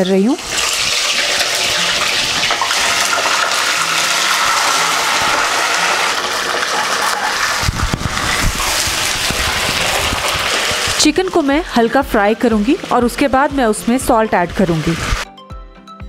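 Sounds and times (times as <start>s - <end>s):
chicken sizzling in hot oil: 0.0s - 15.3s.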